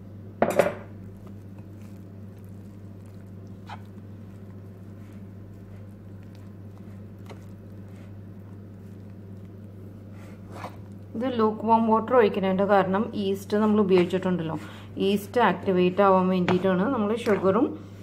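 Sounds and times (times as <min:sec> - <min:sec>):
steady low hum: 0:00.0 - 0:18.0
spoon squishing and scraping dough: 0:00.9 - 0:11.4, 0:15.9 - 0:17.8.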